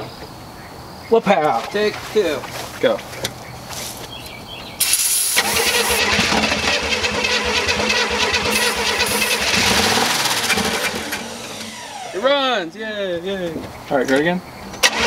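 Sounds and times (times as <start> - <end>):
car engine starting and running: 4.8 - 12.7, 14.8 - 15.0.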